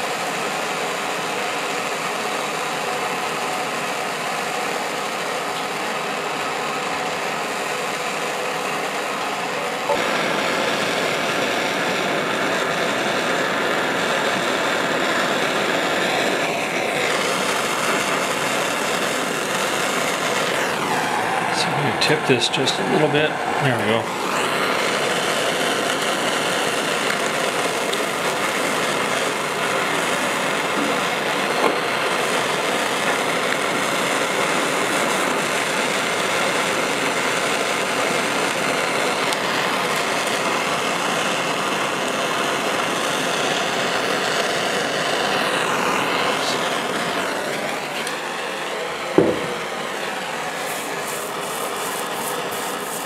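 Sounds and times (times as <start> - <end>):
blowtorch hissing: 0.0 - 53.0
sharp knock: 49.2 - 49.6
wire brush scrubbing metal: 50.6 - 53.0.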